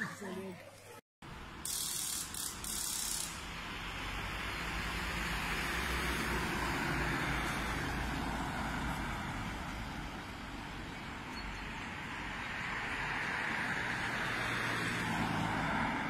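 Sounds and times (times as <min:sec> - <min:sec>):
minivan driving past: 0:03.2 - 0:11.2.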